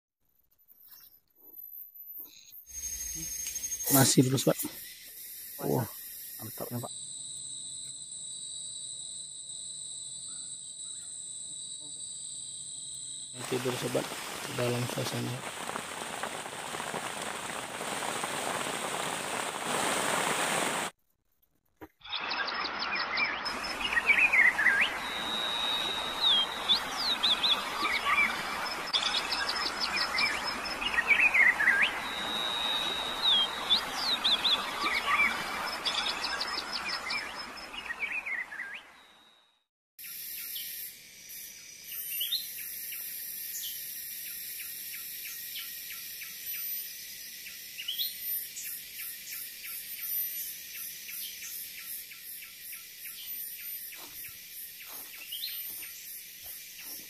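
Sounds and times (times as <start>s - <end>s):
birds chirping and whistling: 0.8s - 5.8s, 22.0s - 39.0s
high insect drone: 2.7s - 20.9s, 23.5s - 37.6s, 40.0s - 57.0s
steady hiss: 13.4s - 20.9s
steady rain: 13.4s - 20.9s, 23.5s - 37.6s.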